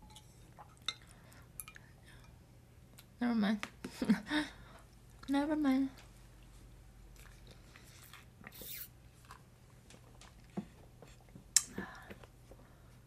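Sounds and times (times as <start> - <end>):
person chewing food: 6.4 - 11.7
wet mouth clicks: 8.5 - 8.9.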